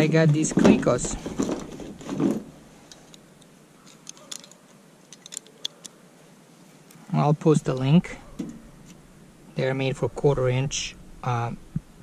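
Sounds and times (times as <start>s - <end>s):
metal fasteners clinking: 0.0s - 6.0s.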